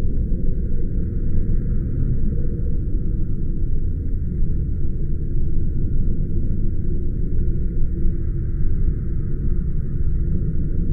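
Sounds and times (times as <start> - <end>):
low rumbling hum: 0.0 - 10.9.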